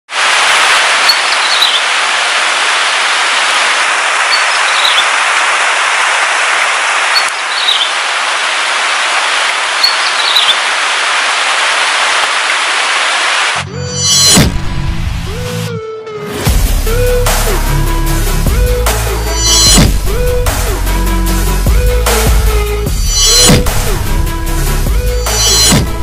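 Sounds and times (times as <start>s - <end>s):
heavy rain: 0.1s - 14.3s
bird high call: 4.3s - 5.1s, 7.2s - 7.9s, 9.8s - 10.6s.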